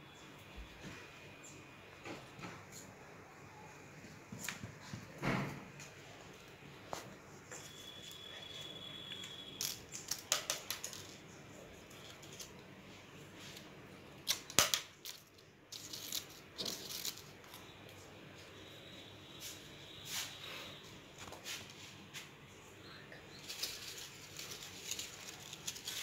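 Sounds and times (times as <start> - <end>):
paper rustling: 23.3 - 26.0.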